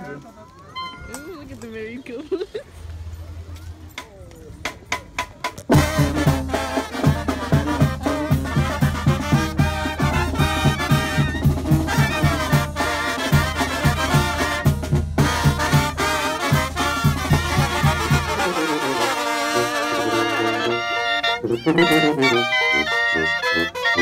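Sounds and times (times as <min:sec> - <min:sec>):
brass band playing: 0:05.6 - 0:24.0.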